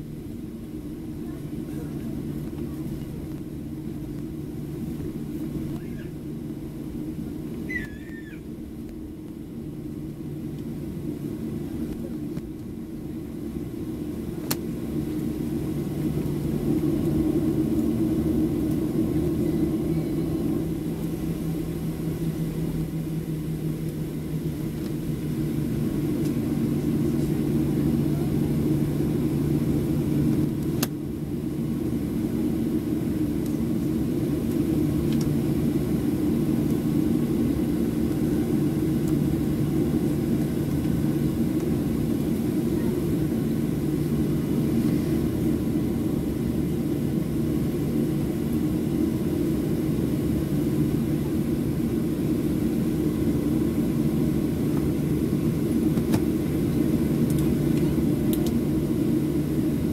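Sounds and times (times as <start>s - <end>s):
jet engine low hum: 0.0s - 59.9s.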